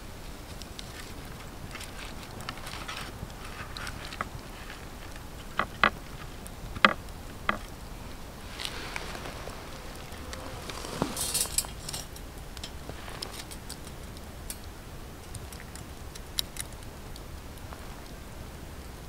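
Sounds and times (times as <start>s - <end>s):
rustle: 0.0s - 19.0s
metallic clinks of wire basket: 11.1s - 12.8s.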